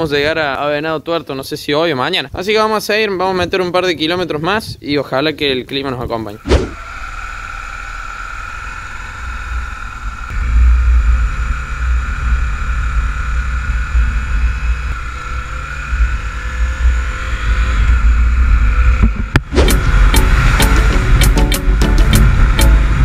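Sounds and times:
motorcycle engine running: 0:06.7 - 0:23.0
wind rumble on microphone: 0:10.3 - 0:20.6.

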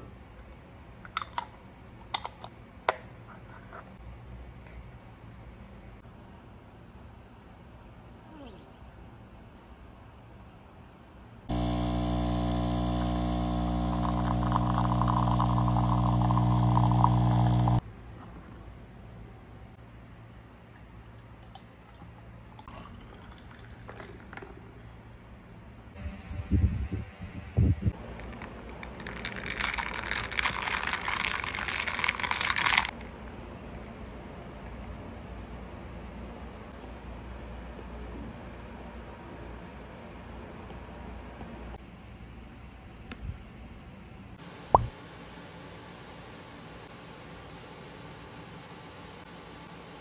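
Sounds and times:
espresso machine pump buzzing: 0:11.5 - 0:17.8
ice cubes clinking in glass jar: 0:28.9 - 0:32.9.

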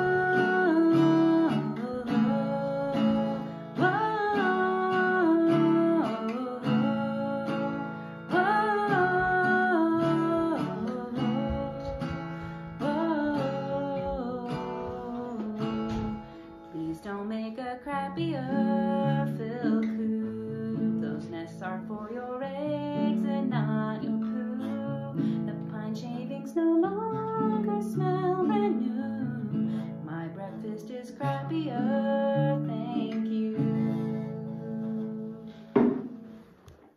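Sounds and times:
person singing without words: 0:00.0 - 0:36.3
acoustic guitar: 0:00.0 - 0:36.9
sharp knock: 0:35.8 - 0:36.1.

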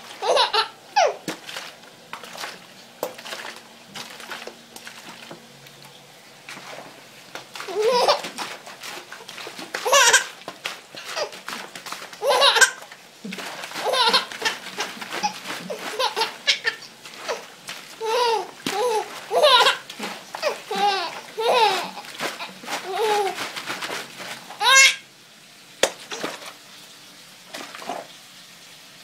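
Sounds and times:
baby laughing: 0:00.2 - 0:01.2, 0:07.6 - 0:10.4, 0:11.0 - 0:23.8, 0:24.5 - 0:25.0.

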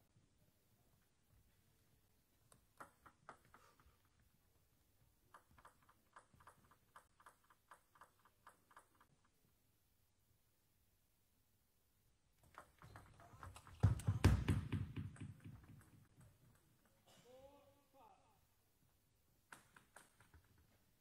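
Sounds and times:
table tennis ball bouncing: 0:12.4 - 0:17.0.

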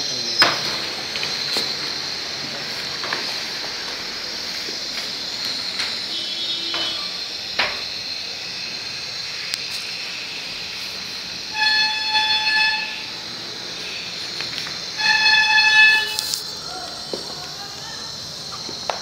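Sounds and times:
gas burner hissing: 0:00.0 - 0:19.0
horn sounding: 0:06.0 - 0:07.2, 0:11.5 - 0:14.3, 0:14.9 - 0:16.5.

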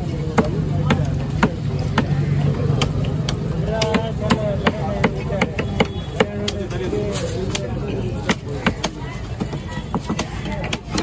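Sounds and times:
cleaver chopping on wooden block: 0:00.3 - 0:02.2, 0:08.2 - 0:11.0.

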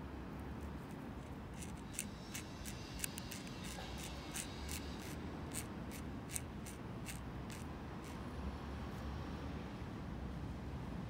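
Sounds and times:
low steady background rumble: 0:00.0 - 0:09.0
metallic lighter clicks and rubbing: 0:01.5 - 0:08.2.

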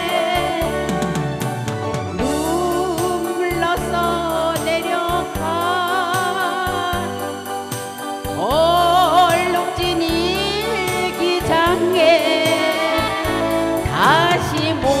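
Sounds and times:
woman singing with vibrato: 0:00.0 - 0:01.5, 0:02.2 - 0:15.0
saxophone: 0:00.0 - 0:04.4
electric guitar: 0:00.0 - 0:15.0.

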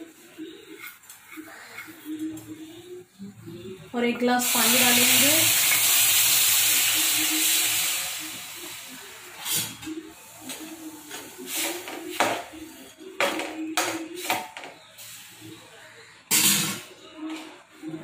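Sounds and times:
water pouring into pan: 0:04.4 - 0:09.0.

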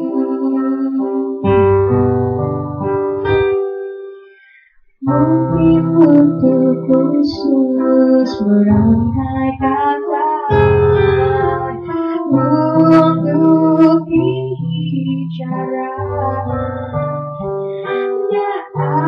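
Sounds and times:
woman singing: 0:00.0 - 0:01.8, 0:05.0 - 0:17.0, 0:17.9 - 0:19.0.

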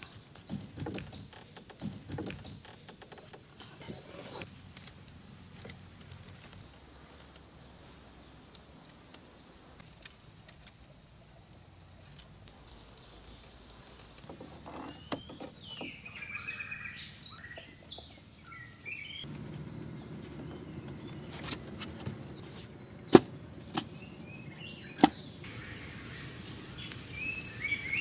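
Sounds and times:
bird calling with gliding notes: 0:04.4 - 0:28.0
shrill insect drone: 0:04.5 - 0:17.4, 0:18.6 - 0:22.4, 0:25.4 - 0:28.0.

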